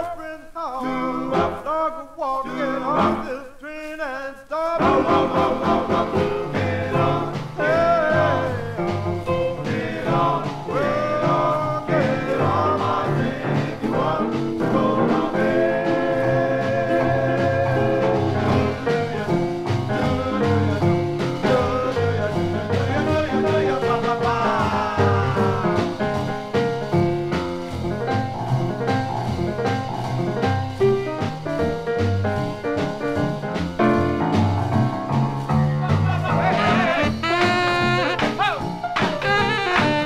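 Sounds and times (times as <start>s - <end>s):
vocal group singing with band: 0.0s - 4.0s, 4.6s - 26.0s.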